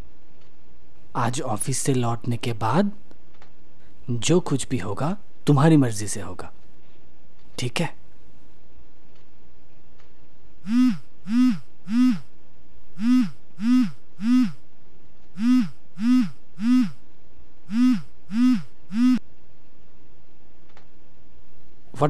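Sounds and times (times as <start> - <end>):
smartphone ringtone hooting tones: 10.7 - 12.3, 13.0 - 14.6, 15.4 - 17.0, 17.7 - 19.2.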